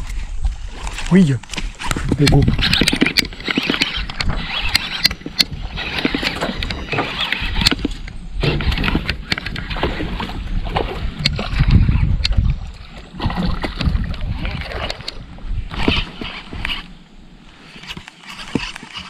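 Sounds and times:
sharp clicks and knocks: 0.8s - 10.3s.

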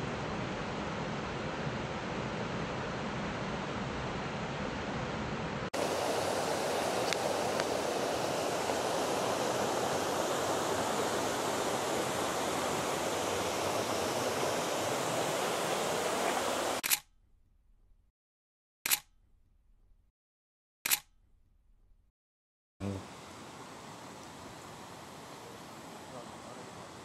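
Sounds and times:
fast-flowing river water: 5.8s - 16.8s, 23.0s - 27.0s.

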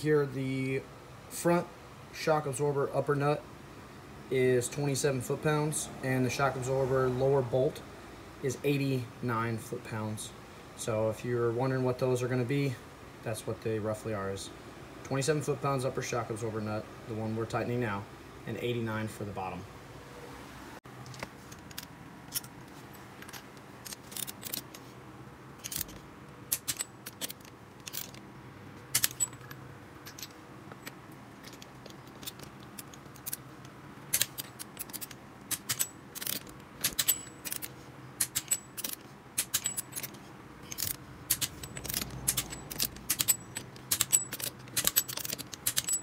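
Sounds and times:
ratchet wrench clicking: 23.2s - 24.8s, 25.6s - 28.2s, 29.0s - 29.5s, 34.1s - 46.0s.

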